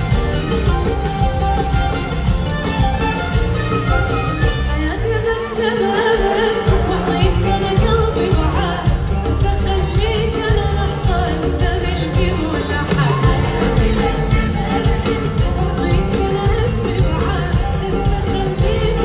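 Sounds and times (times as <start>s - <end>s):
orchestra with strings: 0.0s - 10.1s
woman singing: 4.5s - 19.0s.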